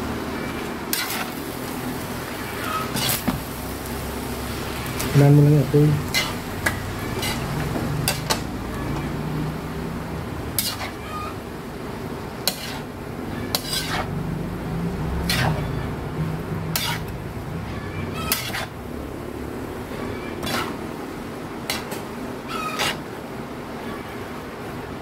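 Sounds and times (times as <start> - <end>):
metal spatula scraping a wok: 0.4 - 1.4, 2.4 - 3.4, 6.0 - 9.2, 10.5 - 11.4, 12.4 - 14.2, 15.1 - 16.0, 16.6 - 18.9, 19.9 - 20.9, 21.6 - 23.1.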